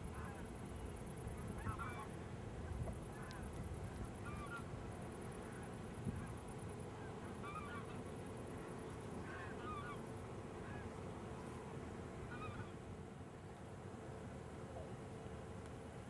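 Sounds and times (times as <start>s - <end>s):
distant geese honking: 1.2s - 2.2s, 4.2s - 4.7s, 5.3s - 11.1s, 12.1s - 12.9s.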